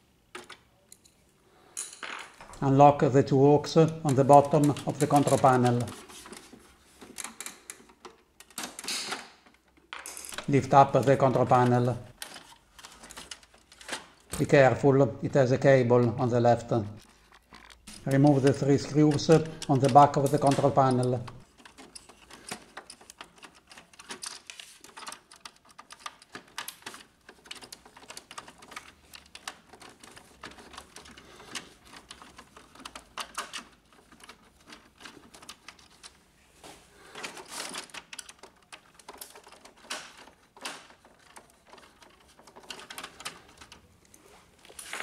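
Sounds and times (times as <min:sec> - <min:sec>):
screwdriver clicking in screw heads: 0:17.0 - 0:36.2.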